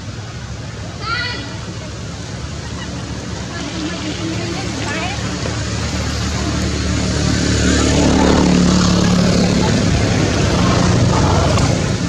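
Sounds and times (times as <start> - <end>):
vehicle engine passing by: 2.7 - 12.0.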